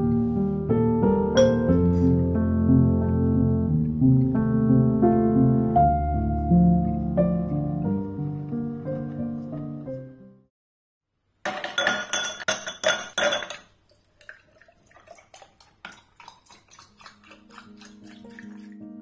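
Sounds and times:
ice cubes clinking in glass: 11.5s - 13.7s
juice pouring over ice: 13.8s - 19.0s.

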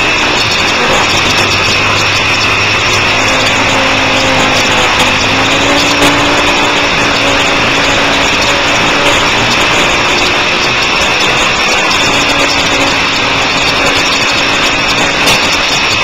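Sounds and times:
motorcycle engine running hard: 0.0s - 16.0s
wind rushing over microphone: 0.0s - 16.0s.

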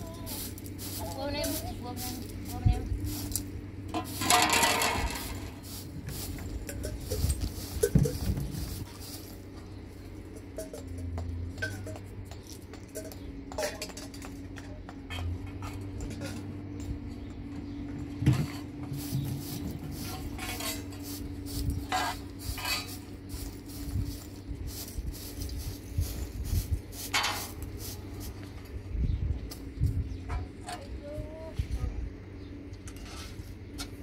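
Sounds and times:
steady hum: 0.0s - 34.0s
objects clicking and knocking: 3.9s - 5.6s, 6.2s - 8.7s, 10.2s - 16.9s.

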